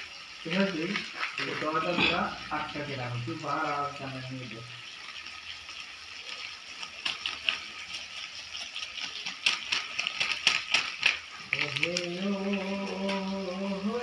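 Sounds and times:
curry sizzling in a pan: 0.0s - 14.0s.

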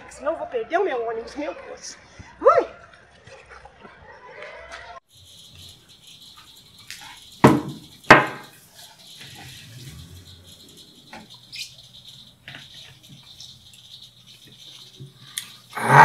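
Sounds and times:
tableware knocking on table: 7.4s - 8.4s.

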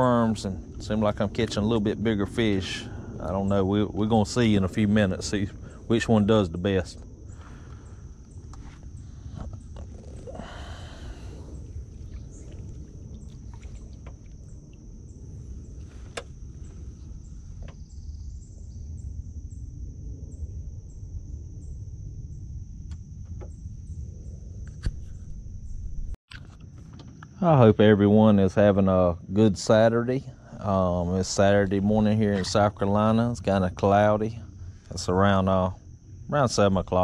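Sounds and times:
high-pitched insect drone: 0.0s - 26.2s
low rumble: 0.0s - 37.0s.

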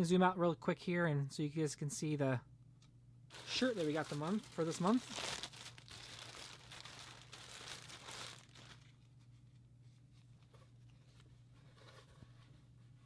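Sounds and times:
plastic bag crinkling: 3.3s - 9.1s.

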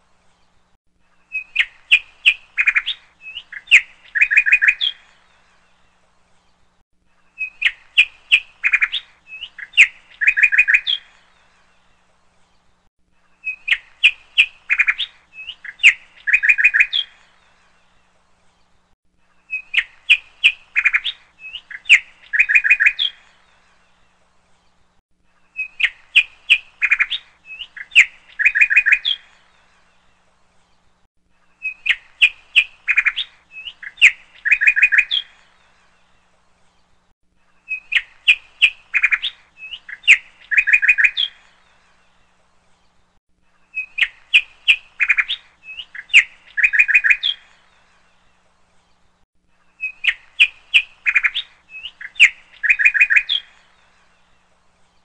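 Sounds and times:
bird chirping and trilling: 1.2s - 5.4s, 7.3s - 11.6s, 13.3s - 18.0s, 19.4s - 24.0s, 25.4s - 30.1s, 31.5s - 36.2s, 37.5s - 42.1s, 43.6s - 49.0s, 49.6s - 55.0s.

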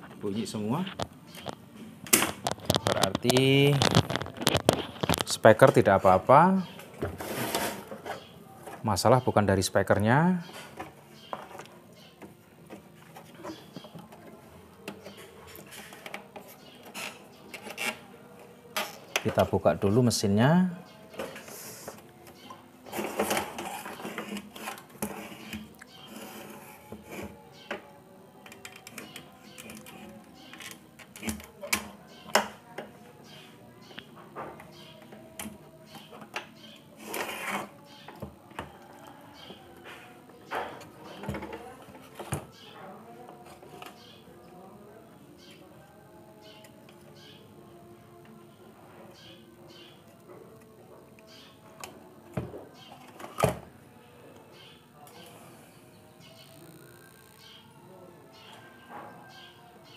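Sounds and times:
clicks and rattles of plastic parts: 0.9s - 5.7s
scraping rustle: 7.0s - 8.3s, 37.0s - 37.8s.

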